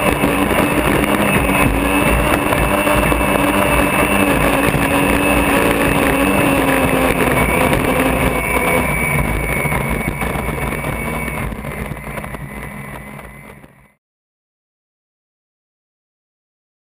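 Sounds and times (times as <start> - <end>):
rush of wind and water: 0.0 - 12.6
turbine engine whine: 0.0 - 14.0.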